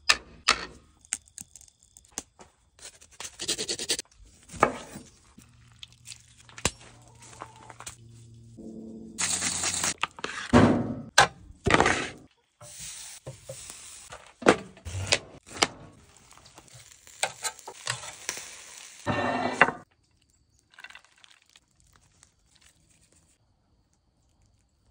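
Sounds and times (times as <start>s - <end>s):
food prep scrapes and rustles: 11.7s - 18.4s.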